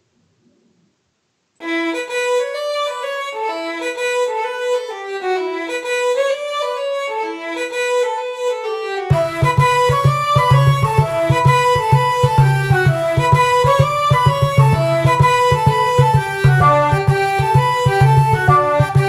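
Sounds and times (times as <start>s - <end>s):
lively fiddle tune: 1.6s - 19.0s
low thumping beat: 9.1s - 19.0s.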